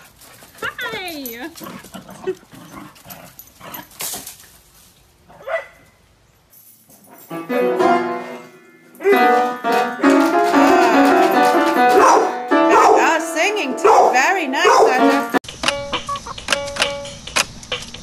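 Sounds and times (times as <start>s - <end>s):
piano note clusters: 7.3s - 17.1s
dog yelping: 12.0s - 13.1s, 13.8s - 15.2s
dog howling: 13.8s - 15.2s.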